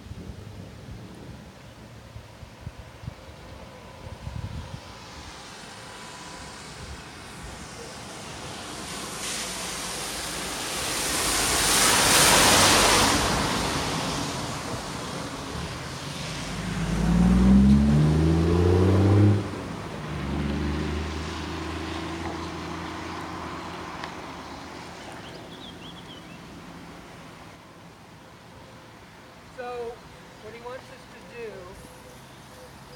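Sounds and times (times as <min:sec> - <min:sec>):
tyres hissing on wet road: 0:01.7 - 0:32.9
engine accelerating: 0:16.3 - 0:24.0.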